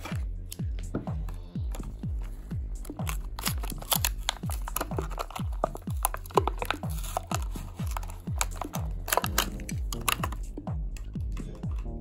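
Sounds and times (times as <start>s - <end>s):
music with bass drum beat: 0.0s - 12.0s
plastic blister pack crinkling and tearing: 2.9s - 10.5s.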